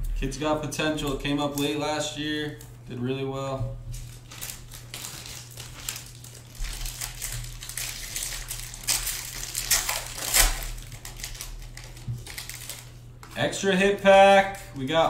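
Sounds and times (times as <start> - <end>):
faint low hum: 0.0 - 15.0
foil wrapper crinkling and tearing: 3.9 - 13.4.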